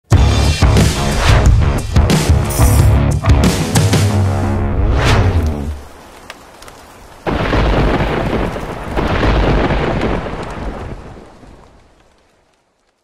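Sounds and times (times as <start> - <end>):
thunderclap: 4.6 - 6.1, 7.3 - 11.8
steady rain hiss: 5.4 - 13.0
rumble of thunder: 7.3 - 11.6.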